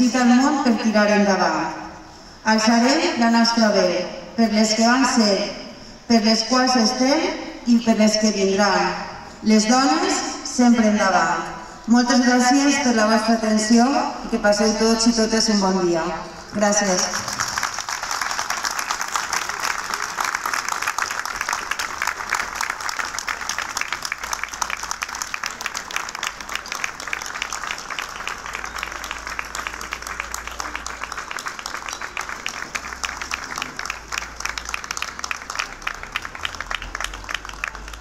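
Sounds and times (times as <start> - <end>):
crowd applauding: 17.0 - 38.0.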